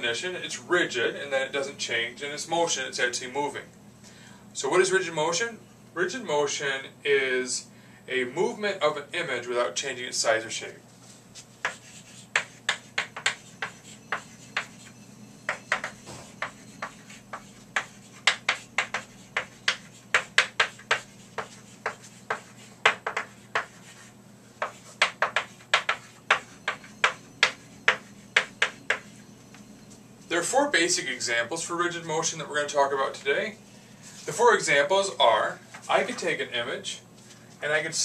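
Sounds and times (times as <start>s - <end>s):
chalk tapping and scratching: 11.4s - 29.2s.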